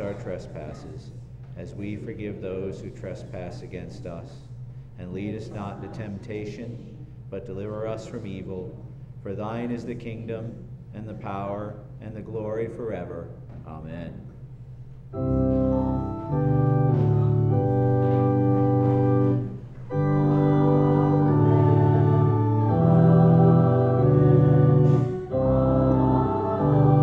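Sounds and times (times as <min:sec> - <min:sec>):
organ playing slow chords: 0:15.0 - 0:27.0.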